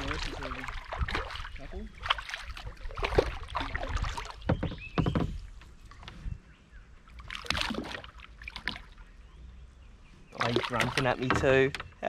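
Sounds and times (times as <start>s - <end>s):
knocks against kayak hull: 4.0s - 5.5s.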